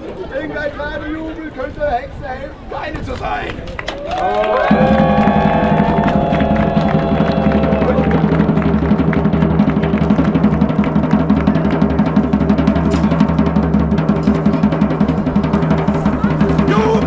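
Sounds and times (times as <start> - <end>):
fast drumming: 4.4 - 17.0.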